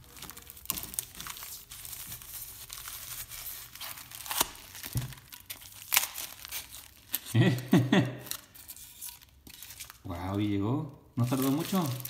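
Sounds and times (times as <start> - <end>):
foam crunching and scraping: 11.2 - 12.0.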